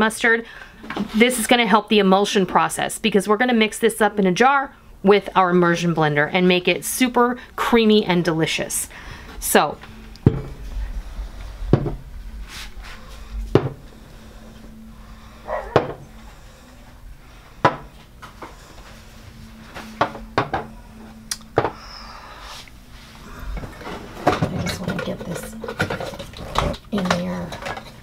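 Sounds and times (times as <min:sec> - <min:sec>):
faint steady hum: 0:00.0 - 0:28.0
dishes knocking and clinking: 0:10.2 - 0:10.6, 0:13.5 - 0:13.8, 0:15.6 - 0:16.0, 0:20.0 - 0:20.7, 0:24.2 - 0:28.0.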